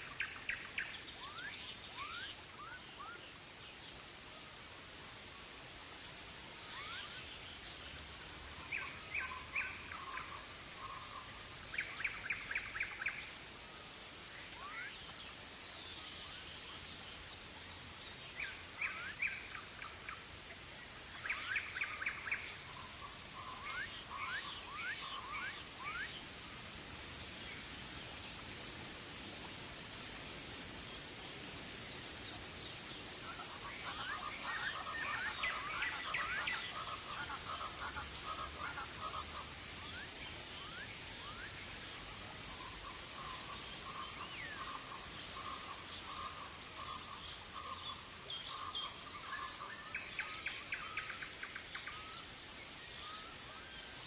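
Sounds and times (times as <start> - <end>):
steady rain: 0.0 - 54.0
birds calling: 31.6 - 51.0.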